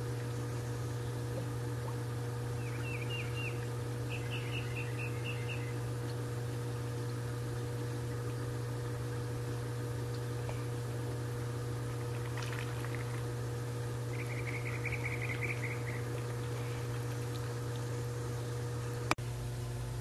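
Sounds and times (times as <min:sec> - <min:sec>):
low machine hum: 0:00.0 - 0:20.0
bird chirping: 0:02.6 - 0:05.8, 0:14.1 - 0:16.0.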